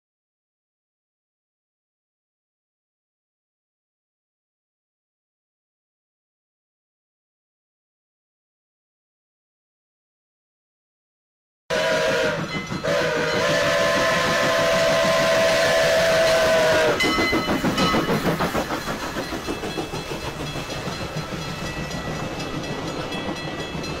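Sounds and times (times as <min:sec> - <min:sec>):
steam locomotive whistle: 0:11.7 - 0:18.0
train wheels rumbling on rails: 0:11.7 - 0:24.0.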